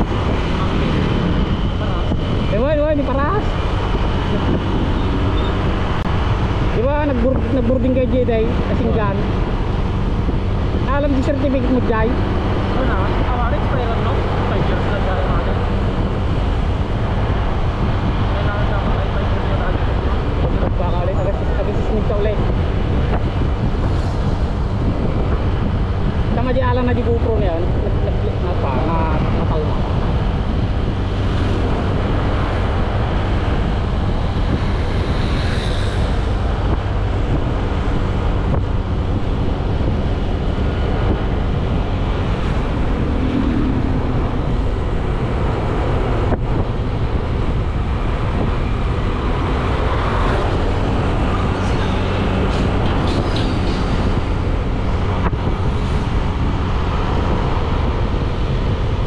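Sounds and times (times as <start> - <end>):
motorcycle engine drone: 0.0 - 59.0
wind rushing over microphone: 0.0 - 59.0.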